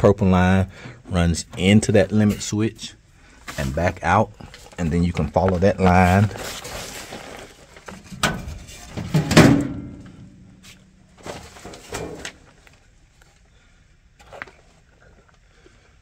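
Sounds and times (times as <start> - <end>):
knocks against sheet metal: 9.1 - 10.1.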